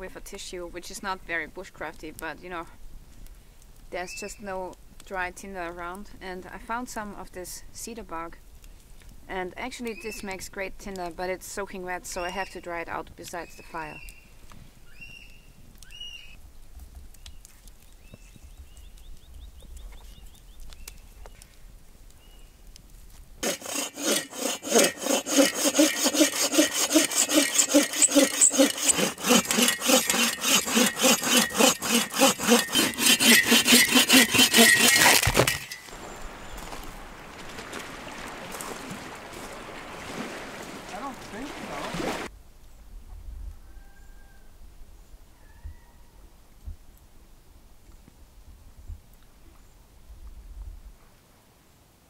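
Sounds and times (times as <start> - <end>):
hand saw cutting wood: 23.4 - 35.9
wind and water hiss: 34.7 - 43.7.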